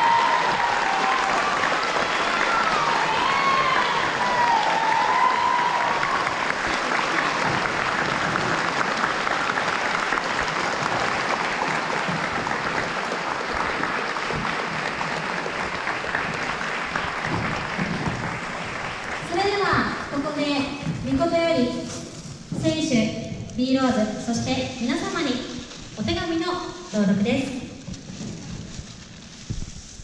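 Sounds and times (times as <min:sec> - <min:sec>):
large crowd applauding: 0:00.0 - 0:20.4.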